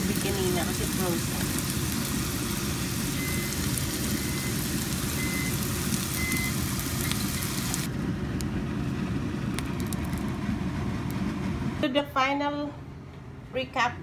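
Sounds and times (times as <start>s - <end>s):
vegetables sizzling in a pan: 0.0s - 7.9s.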